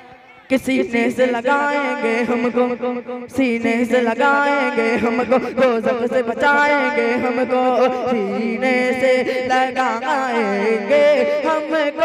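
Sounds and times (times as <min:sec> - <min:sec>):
man singing into a microphone: 0:03.9 - 0:12.0.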